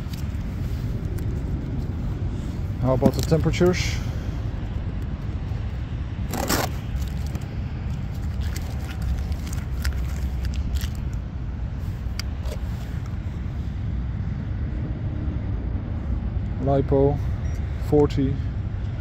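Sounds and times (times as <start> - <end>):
low rumble: 0.0 - 17.8
tape ripped off wood: 6.2 - 7.4.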